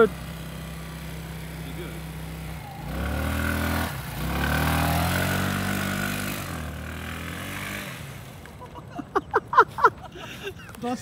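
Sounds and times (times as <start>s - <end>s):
scooter engine revving: 0.0s - 8.8s.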